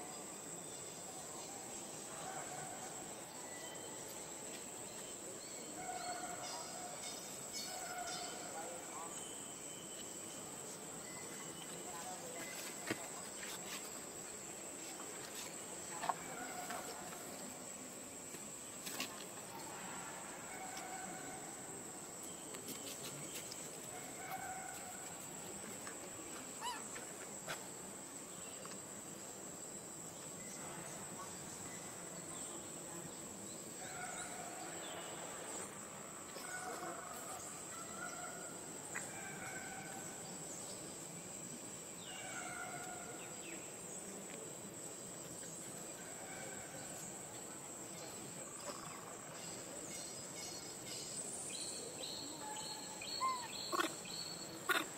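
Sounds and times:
insects droning: 0.0s - 54.9s
short insect calls: 48.0s - 54.9s.

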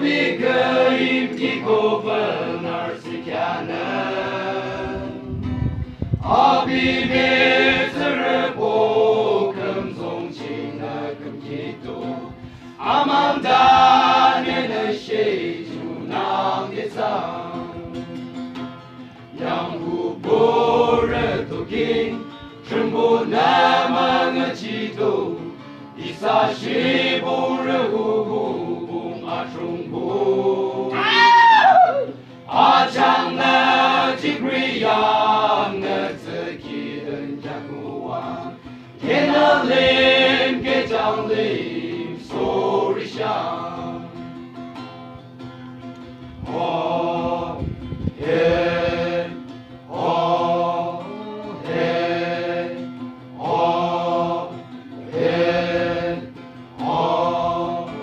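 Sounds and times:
men singing as a choir: 0.0s - 5.3s, 6.2s - 18.4s, 19.3s - 44.4s, 46.4s - 58.0s
acoustic guitar: 0.0s - 58.0s.

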